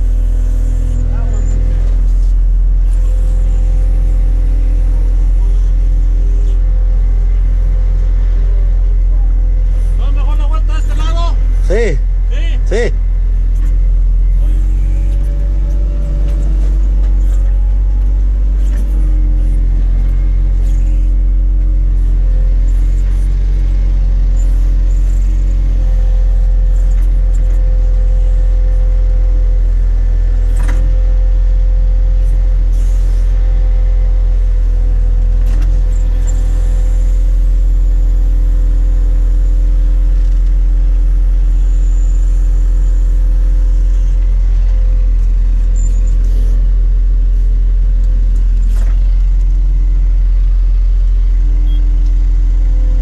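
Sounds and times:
diesel engine and machinery droning: 0.0s - 53.0s.

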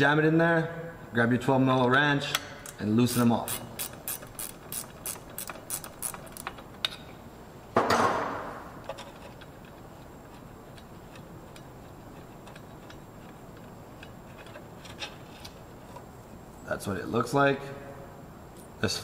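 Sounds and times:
ratcheting wrench clicking: 2.3s - 6.6s.

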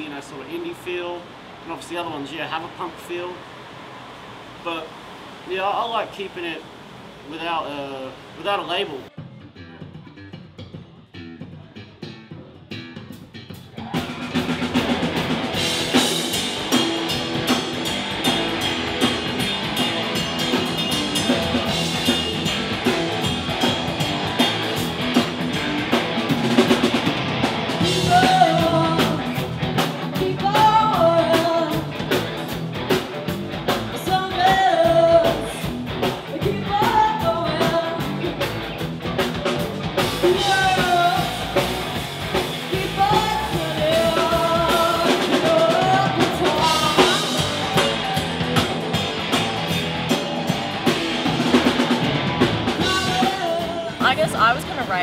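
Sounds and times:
rock band playing: 9.2s - 55.0s
female lead vocal: 28.0s - 29.4s, 30.2s - 31.9s, 36.3s - 38.2s, 40.3s - 41.6s, 42.7s - 47.3s, 52.8s - 55.0s.

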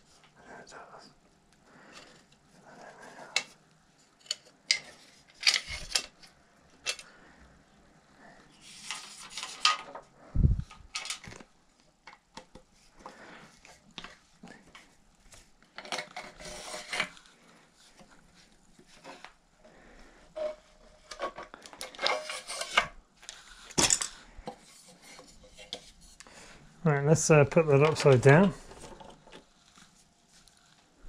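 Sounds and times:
bicycle parts clicking and rustling: 3.2s - 7.2s, 8.6s - 19.4s, 20.2s - 26.4s, 27.7s - 30.8s.

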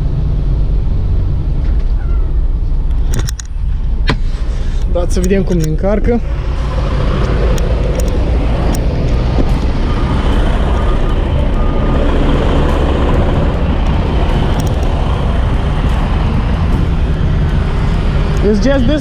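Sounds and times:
idling truck engines rumbling: 0.0s - 19.0s
forklift driving: 4.2s - 19.0s.

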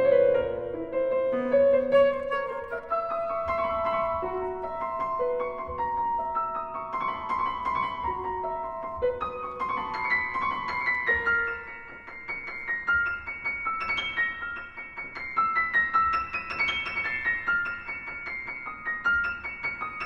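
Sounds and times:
piano playing quick notes: 0.0s - 8.2s.

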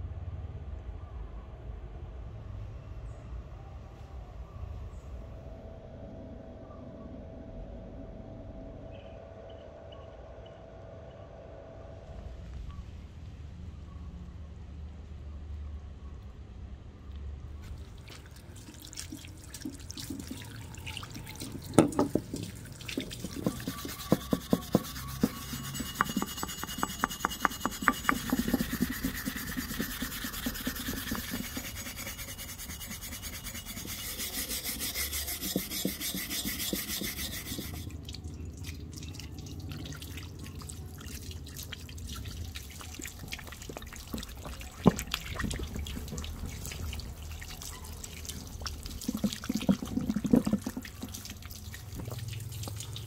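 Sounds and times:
water splashing and dripping: 17.6s - 53.0s
metal scrubbing on wet plank: 18.0s - 38.0s, 42.8s - 53.0s.

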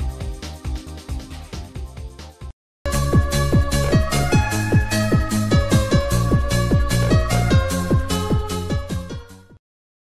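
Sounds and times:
electronic dance music: 2.9s - 8.7s
kick-drum beat: 2.9s - 9.2s.

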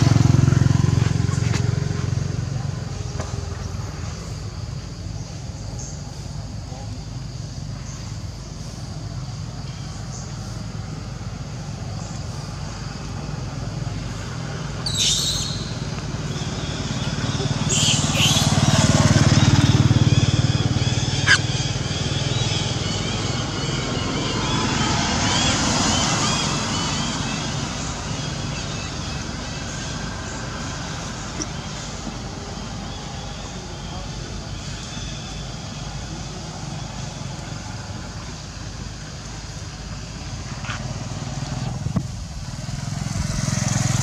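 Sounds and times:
vehicle engine passing: 0.0s - 4.6s, 10.1s - 44.0s
young monkeys squealing: 14.9s - 24.6s.

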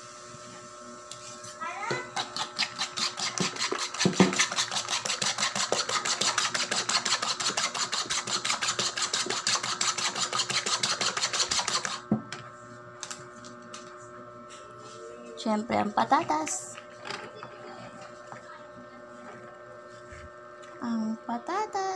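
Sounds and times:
spoon beating eggs in bowl: 2.1s - 12.0s.

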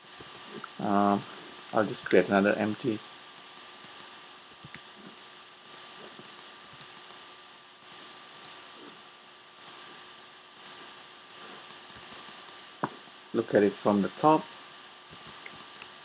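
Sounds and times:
mouse and keyboard clicks: 0.0s - 0.5s, 3.5s - 4.8s, 5.7s - 7.2s, 10.6s - 12.6s, 15.1s - 15.9s
faint steady hum: 0.0s - 16.0s.

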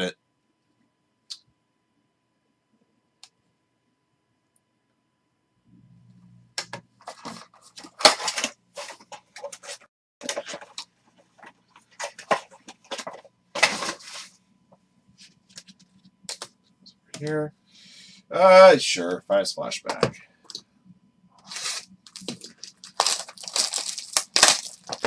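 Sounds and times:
cards and wrappers rustling: 7.0s - 14.4s, 21.4s - 25.0s.

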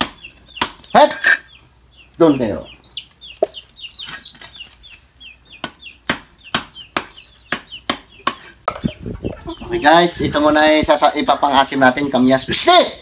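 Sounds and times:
chickens clucking and peeping: 0.0s - 12.4s
cleaver chopping fish on stone: 5.6s - 8.6s.

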